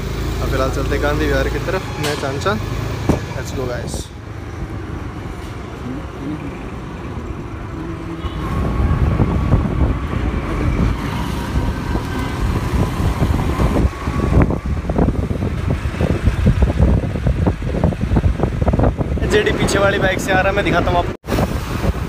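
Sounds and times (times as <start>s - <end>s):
scooter engine and road rumble: 0.0s - 22.0s
wind rushing over microphone: 7.3s - 22.0s.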